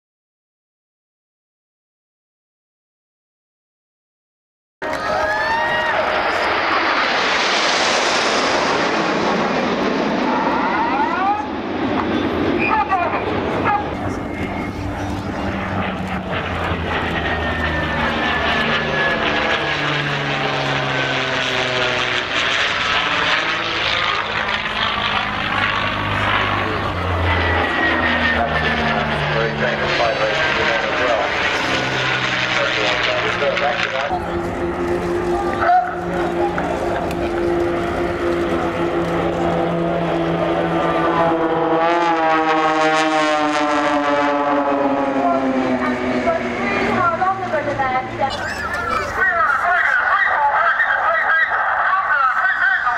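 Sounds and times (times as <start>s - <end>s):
propeller plane engine droning: 4.8s - 52.9s.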